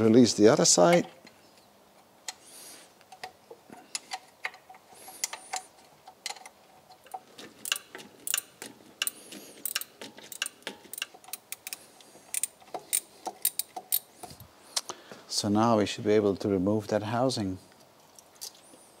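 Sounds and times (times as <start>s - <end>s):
spanner clicking on bolts: 3.1s - 14.4s.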